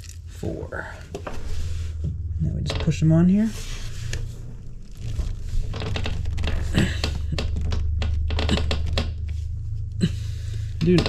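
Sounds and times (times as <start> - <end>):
low hum: 0.0 - 11.0.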